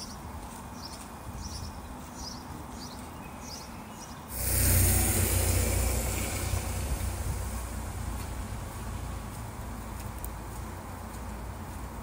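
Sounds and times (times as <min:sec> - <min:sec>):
tyres on a wet road: 0:04.3 - 0:12.0.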